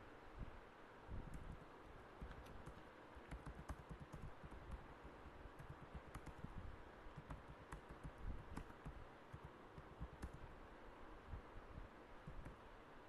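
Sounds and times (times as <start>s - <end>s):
low steady rumble: 0.0s - 13.0s
computer keyboard typing: 1.2s - 4.8s, 5.6s - 10.5s.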